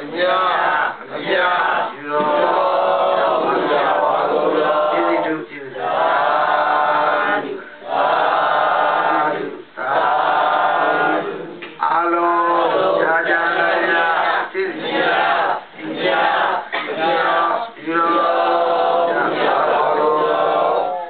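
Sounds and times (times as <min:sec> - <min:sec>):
monk chanting through microphone: 0:00.0 - 0:05.8.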